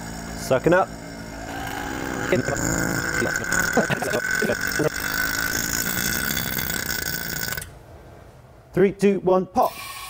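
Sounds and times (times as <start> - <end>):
vacuum pump running: 0.0 - 7.7
steady high tone: 1.1 - 7.7.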